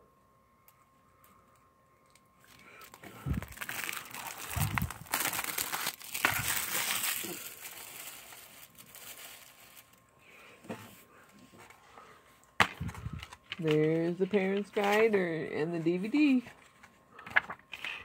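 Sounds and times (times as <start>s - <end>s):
plastic wrap crinkling: 2.1s - 10.0s.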